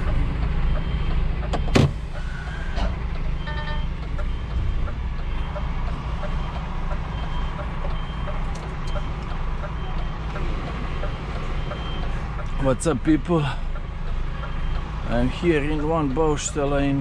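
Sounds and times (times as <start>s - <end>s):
truck engine rumbling: 0.0s - 17.0s
short beep: 3.4s - 5.6s.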